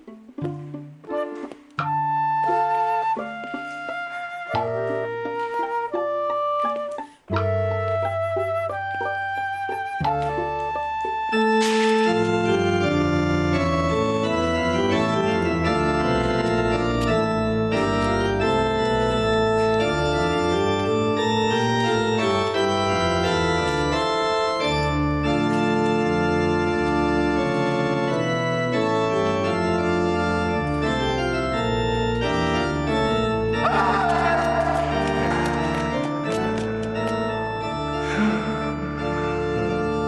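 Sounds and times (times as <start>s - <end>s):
organ chords: 8.7s - 40.0s.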